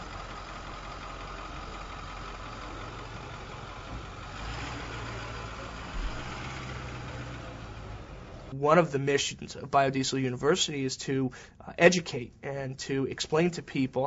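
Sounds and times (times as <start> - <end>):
diesel truck engine idling: 0.0 - 8.6
low bump: 3.7 - 8.5.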